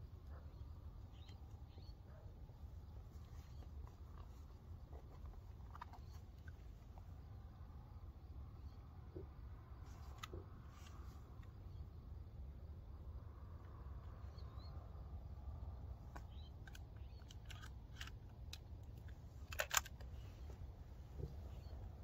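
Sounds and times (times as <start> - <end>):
low steady rumble: 0.0 - 22.0
shotgun clicks: 16.4 - 20.1.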